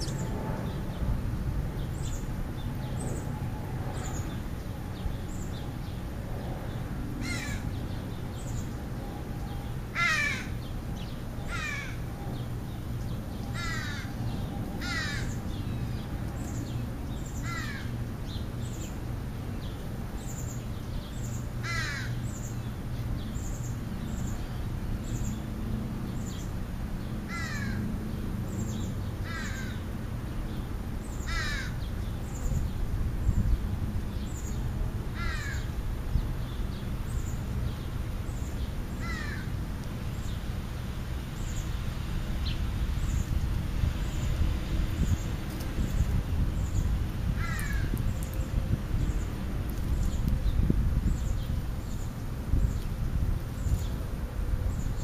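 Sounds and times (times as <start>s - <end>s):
crow cawing: 7.2s - 7.6s, 9.9s - 10.5s, 11.5s - 12.0s, 13.6s - 14.2s, 14.8s - 15.4s, 17.4s - 17.9s, 21.6s - 22.2s, 27.3s - 27.8s, 29.2s - 29.8s, 31.3s - 31.8s, 35.2s - 35.7s, 39.0s - 39.5s, 47.4s - 48.0s.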